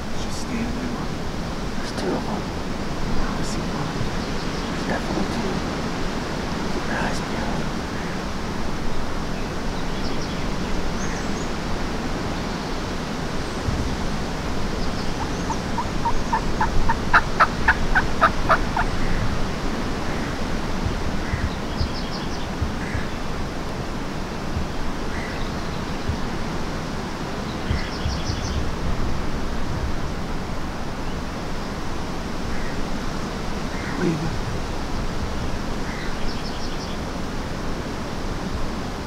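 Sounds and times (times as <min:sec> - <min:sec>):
wild turkey calling: 0:14.6 - 0:19.4
faint bird chirps: 0:14.7 - 0:19.3, 0:27.4 - 0:28.6.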